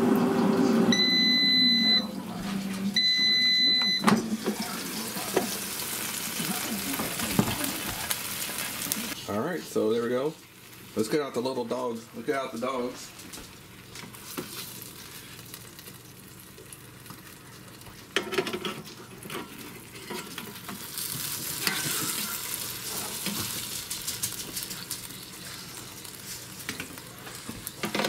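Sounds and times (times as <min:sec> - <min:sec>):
burger patties sizzling: 0:00.0 - 0:28.0
spatula scraping metal grate: 0:21.6 - 0:23.5.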